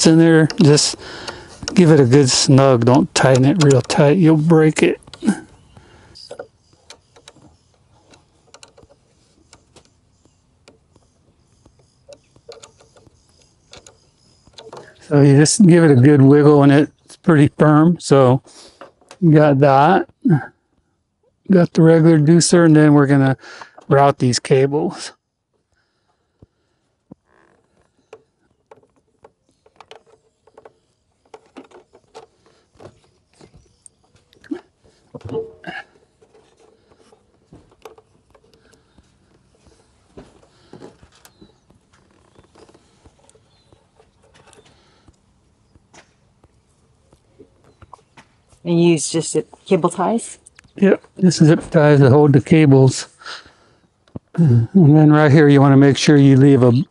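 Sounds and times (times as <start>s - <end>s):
clicks and light knocks: 0.0s - 15.1s, 27.1s - 48.3s
cables rubbing: 0.0s - 16.6s, 27.1s - 48.7s
allen key clicking on bolt: 2.8s - 4.2s, 6.3s - 9.8s, 12.1s - 15.0s.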